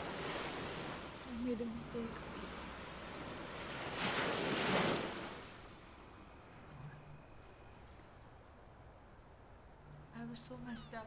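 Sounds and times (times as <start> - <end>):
gust of wind: 2.5 - 5.8.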